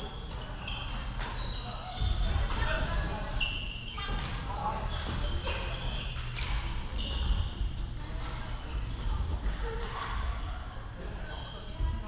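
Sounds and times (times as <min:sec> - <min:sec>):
shoes squeaking on court: 0:00.0 - 0:09.2
rumble of large hall: 0:04.1 - 0:12.0.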